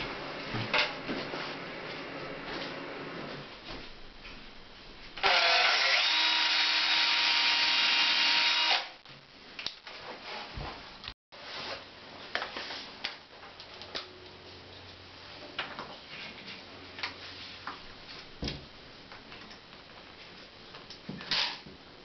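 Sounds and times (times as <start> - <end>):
cordless drill running: 5.2 - 9.0.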